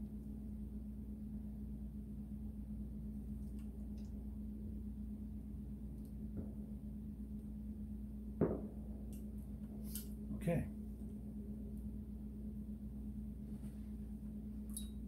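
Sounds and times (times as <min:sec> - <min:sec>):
low electrical hum: 0:00.0 - 0:15.0
sharp knock: 0:08.4 - 0:08.8.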